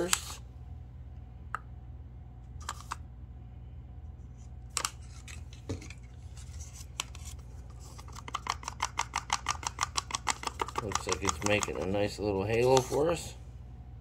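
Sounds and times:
steady low hum: 0:00.0 - 0:14.0
light clicks of paint cups: 0:08.0 - 0:13.1
stick scraping paint in cup: 0:10.2 - 0:13.2.

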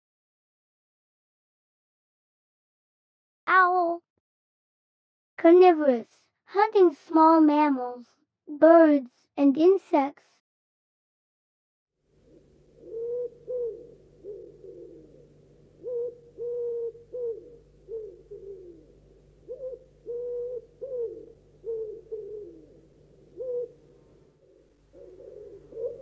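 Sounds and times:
owl hooting: 0:12.2 - 0:26.0.

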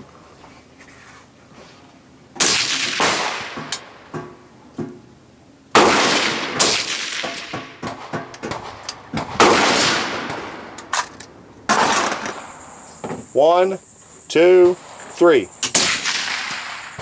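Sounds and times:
loud gunshots with echo: 0:02.4 - 0:03.6, 0:05.7 - 0:10.7, 0:11.7 - 0:12.5, 0:15.7 - 0:17.0
fainter gunshot cracks: 0:09.4 - 0:10.3, 0:15.7 - 0:17.0.

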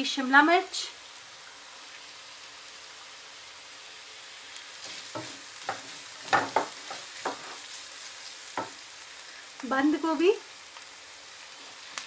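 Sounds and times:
vegetables sizzling in oil: 0:00.0 - 0:12.0
spatula scraping a pan: 0:04.8 - 0:07.9.

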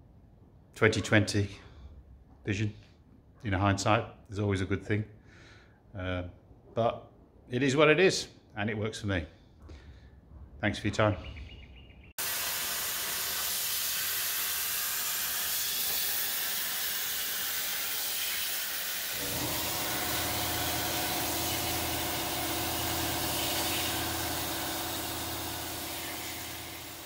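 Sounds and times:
plasma torch hissing: 0:12.2 - 0:27.0.

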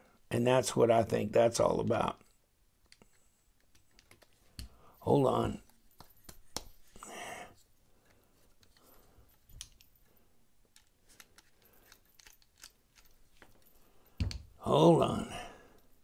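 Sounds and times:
tools clicking and tapping: 0:02.8 - 0:04.8, 0:05.6 - 0:06.9, 0:08.0 - 0:14.6.

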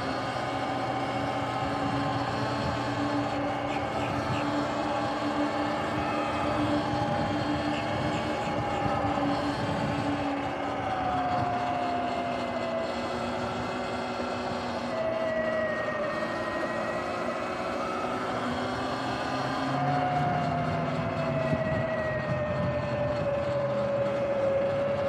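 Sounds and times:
electric motor whine: 0:00.0 - 0:25.0
tyre and wind noise: 0:20.3 - 0:25.0.

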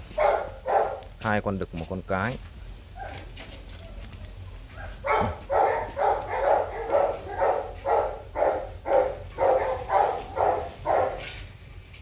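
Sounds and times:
dog barking: 0:00.1 - 0:01.0, 0:03.0 - 0:03.3, 0:04.7 - 0:11.4.

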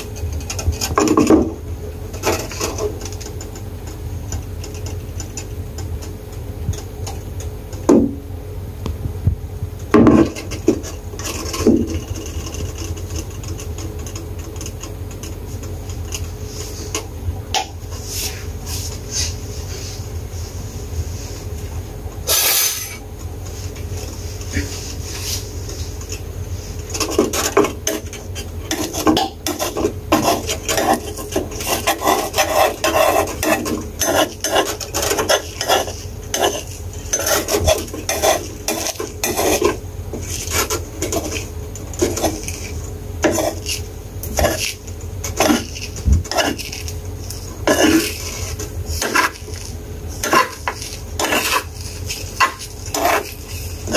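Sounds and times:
steady low hum: 0:00.0 - 0:53.9
spoon scraping frying pan: 0:27.0 - 0:53.9.

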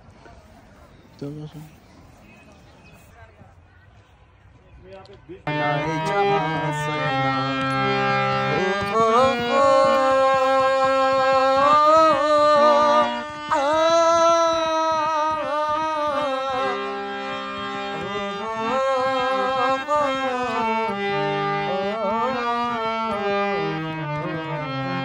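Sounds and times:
harmonium reed notes: 0:05.5 - 0:25.0
man singing with vibrato: 0:05.5 - 0:25.0.

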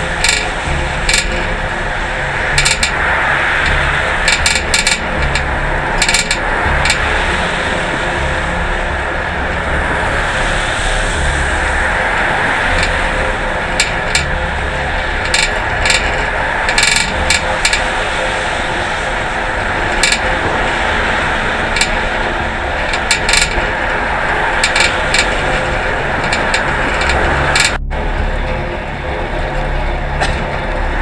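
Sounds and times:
bicycle parts rattling and clanking: 0:00.0 - 0:01.6, 0:02.4 - 0:07.5, 0:12.6 - 0:18.3, 0:19.2 - 0:27.9, 0:30.2 - 0:30.8
wind and road noise: 0:00.0 - 0:31.0.

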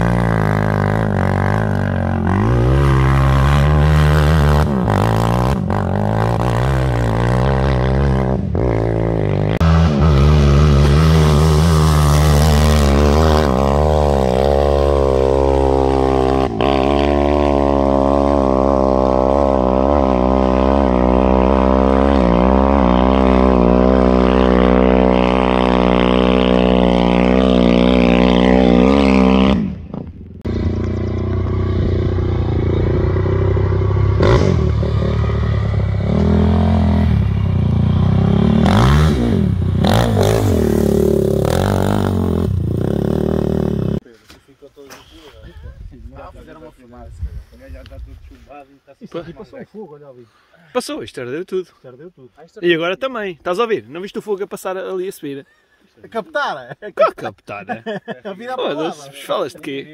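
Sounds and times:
quad bike engine revving: 0:00.0 - 0:44.0.

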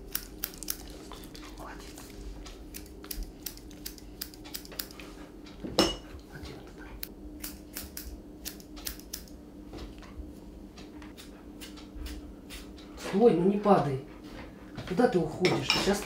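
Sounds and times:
scissors snipping hair: 0:00.0 - 0:05.0, 0:07.0 - 0:09.4, 0:11.2 - 0:12.7.

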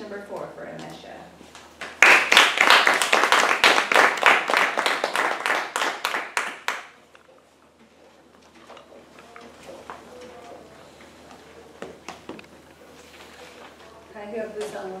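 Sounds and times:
small group applauding: 0:01.8 - 0:07.1.

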